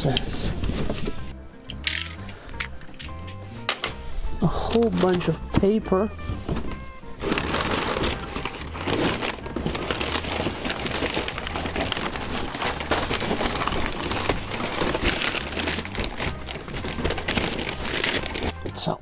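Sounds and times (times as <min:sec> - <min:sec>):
paper crinkling and rustling: 0:04.6 - 0:05.6, 0:06.3 - 0:18.8.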